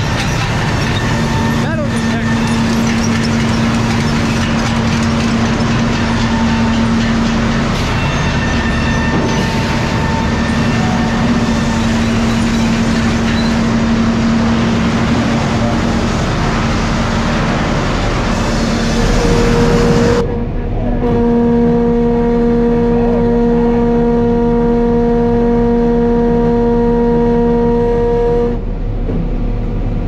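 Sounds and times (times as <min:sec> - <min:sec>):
conveyor clatter: 0:00.0 - 0:21.4
low machinery hum: 0:00.0 - 0:30.0.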